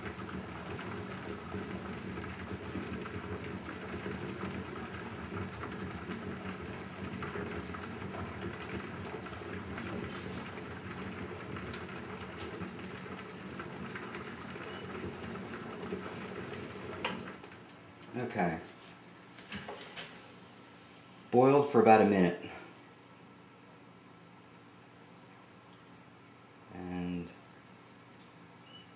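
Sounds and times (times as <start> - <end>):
coffee maker bubbling: 0.0 - 18.6.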